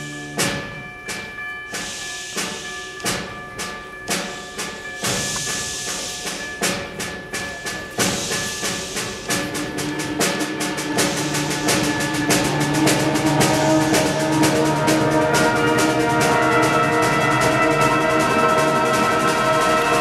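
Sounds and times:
percussion in chugging rhythm: 0.0s - 20.0s
wind and brass chords: 7.9s - 20.0s.

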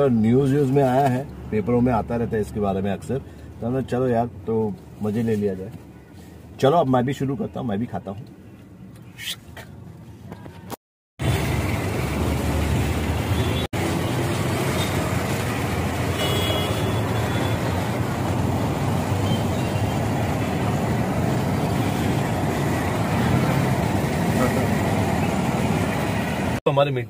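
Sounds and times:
engines of buses cars and motorbikes: 0.0s - 27.0s.

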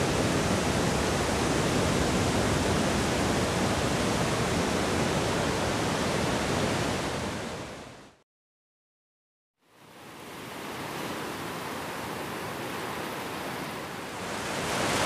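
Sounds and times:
ocean surf breaking on beach: 0.0s - 8.0s, 9.8s - 15.0s.

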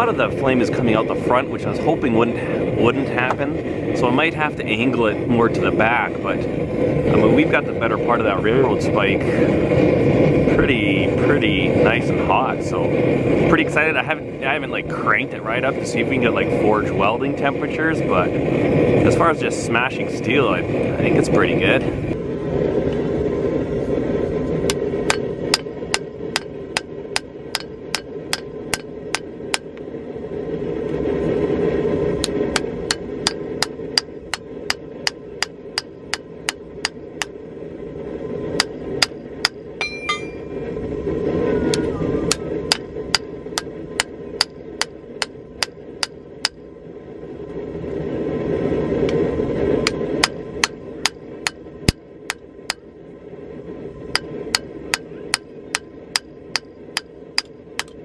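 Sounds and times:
low rushing noise: 0.0s - 58.0s
hammer striking hot metal: 24.6s - 29.8s, 32.2s - 37.4s, 38.6s - 40.6s, 41.7s - 46.6s, 49.8s - 52.8s, 54.1s - 58.0s.

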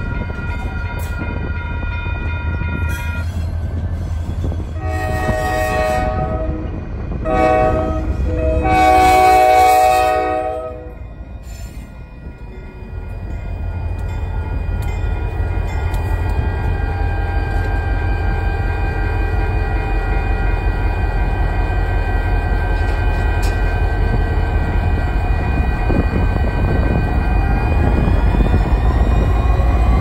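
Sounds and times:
locomotive air horn blasts: 4.8s - 11.0s.

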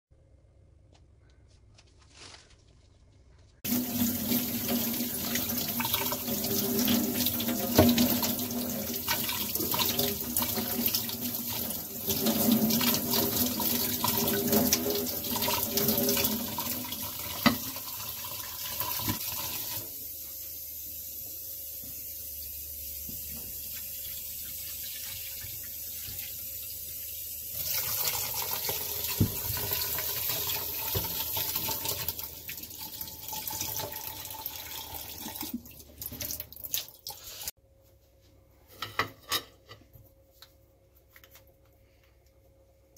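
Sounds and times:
tap running into metal sink: 6.8s - 8.4s, 29.0s - 30.0s.

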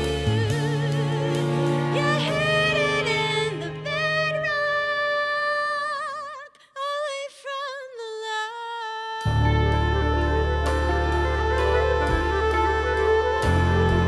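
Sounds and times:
live band playing: 0.0s - 4.7s, 9.2s - 14.0s
woman singing with vibrato: 0.0s - 14.0s.

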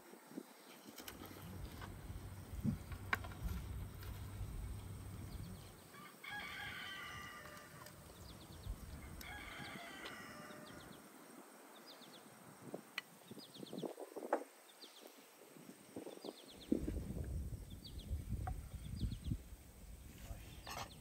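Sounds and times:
rooster crowing: 5.9s - 7.9s, 9.0s - 11.0s.

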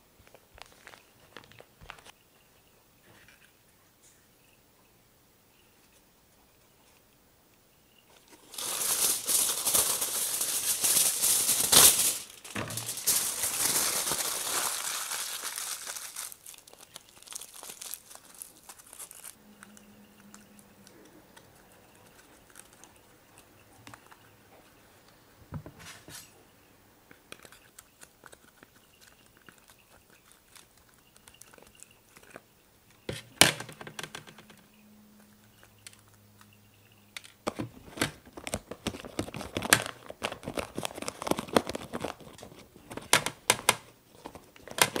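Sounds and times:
aluminium foil crinkling: 0.2s - 2.1s, 8.1s - 24.2s, 27.2s - 32.5s, 37.3s - 45.0s
foil ripping: 8.4s - 19.4s.

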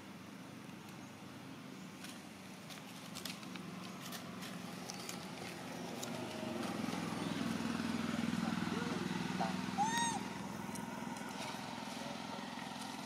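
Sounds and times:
low engine hum: 0.0s - 13.0s
dry leaves crackling: 2.0s - 7.8s, 9.8s - 13.0s.

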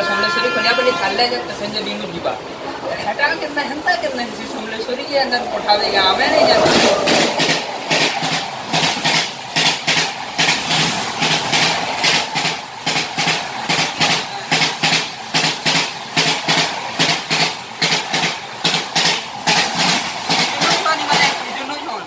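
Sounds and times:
train wheels clattering over rail joints: 6.8s - 21.9s.

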